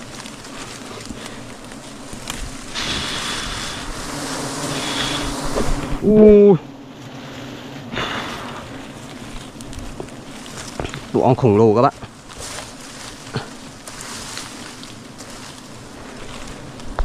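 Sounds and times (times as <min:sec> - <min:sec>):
bees buzzing: 0:00.0 - 0:17.0.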